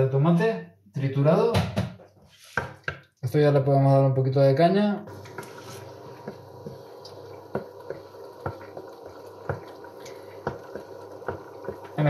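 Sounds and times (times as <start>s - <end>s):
sauce bubbling in a pan: 5.1s - 12.0s
soft pops and plops: 5.2s - 12.0s.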